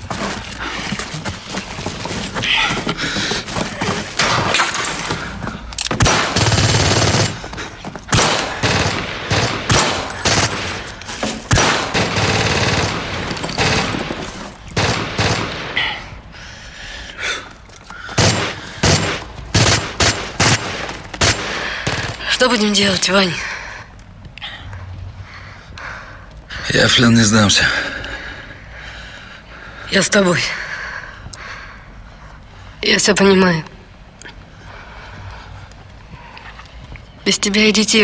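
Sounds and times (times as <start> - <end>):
gunfire bursts: 5.9 - 7.4, 8.1 - 10.8, 11.5 - 14.2, 14.8 - 15.8, 18.2 - 22.3.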